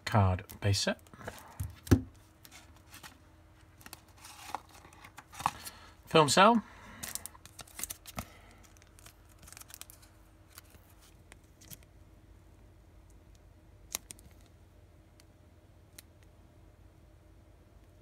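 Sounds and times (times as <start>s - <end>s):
card rustling and clicking: 1.2s - 5.7s.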